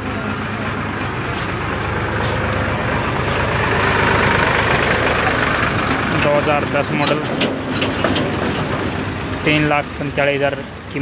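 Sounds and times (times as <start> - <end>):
heavy vehicle engine running: 0.0 - 11.0.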